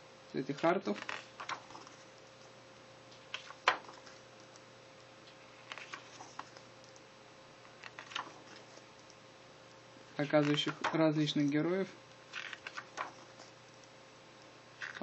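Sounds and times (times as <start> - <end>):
pages turning: 0.6 - 2.1, 3.2 - 4.2, 5.3 - 6.7, 7.7 - 8.9, 10.2 - 11.6, 12.3 - 13.6, 14.8 - 15.0.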